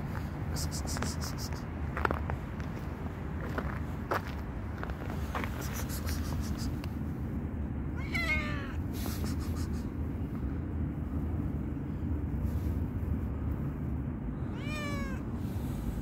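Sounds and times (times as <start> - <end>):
steady low rumble: 0.0 - 16.0
cat meowing: 8.0 - 8.8, 14.4 - 15.3.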